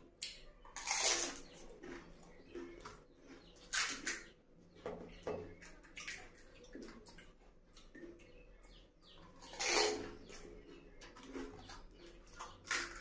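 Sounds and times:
fried shell cracking: 0:00.2 - 0:02.0, 0:03.6 - 0:04.3, 0:12.4 - 0:13.0
soft wet dipping sounds: 0:04.8 - 0:09.4.

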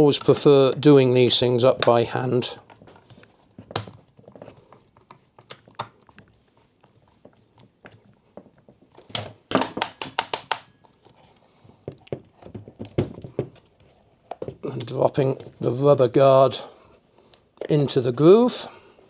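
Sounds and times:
screwdriver clicking on plastic: 0:09.6 - 0:10.7.

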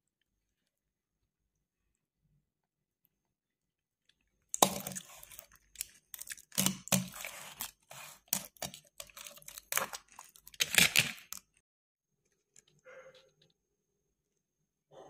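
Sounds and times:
sticker peeling and crinkling: 0:04.6 - 0:11.5.

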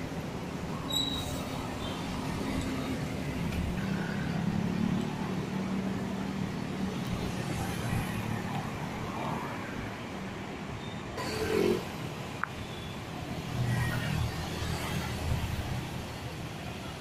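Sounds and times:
cars passing: 0:00.0 - 0:17.0
motorcycles passing: 0:01.6 - 0:09.6, 0:11.2 - 0:12.3.

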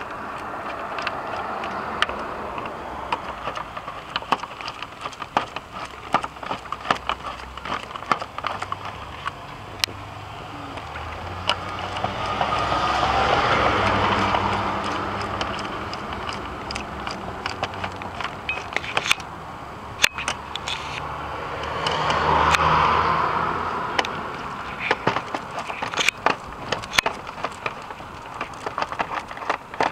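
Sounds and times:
vehicles passing by: 0:00.0 - 0:29.9
screwdriver tapping on screws: 0:10.8 - 0:19.3, 0:24.0 - 0:29.9.

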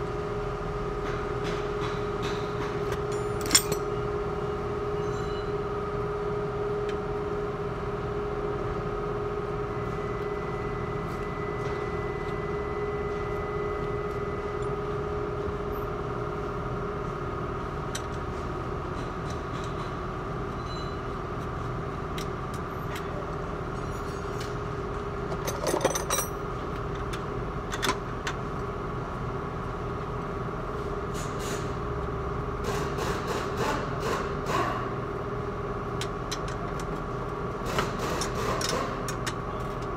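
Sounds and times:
metal clinks: 0:03.1 - 0:03.9, 0:25.4 - 0:26.4.

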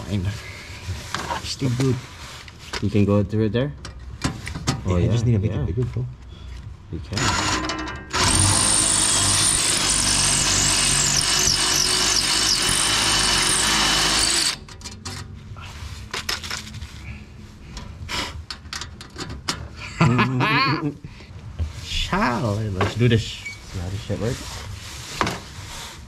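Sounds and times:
power drill whining: 0:07.2 - 0:14.7.

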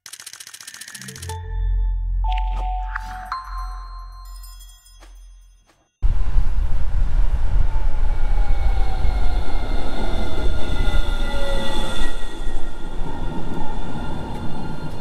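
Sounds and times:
tram rumbling on rails: 0:06.0 - 0:15.0.

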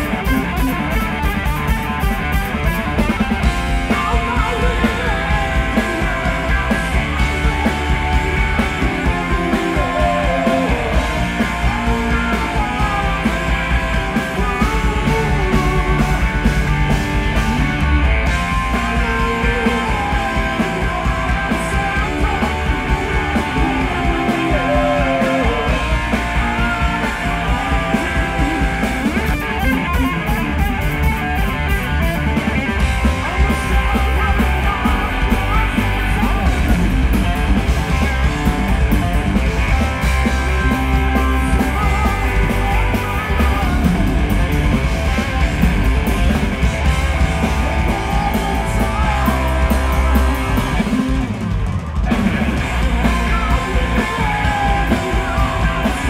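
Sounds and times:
bass guitar: 0:00.0 - 0:56.0
drums: 0:00.0 - 0:56.0
electric guitar: 0:00.0 - 0:56.0.

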